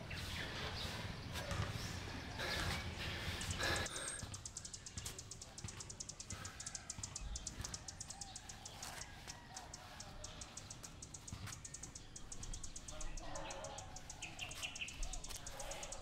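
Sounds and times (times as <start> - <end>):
breath-like rush: 0.0 - 4.8, 13.4 - 16.0
bird chirps: 0.0 - 16.0
insect chirring: 3.9 - 8.2.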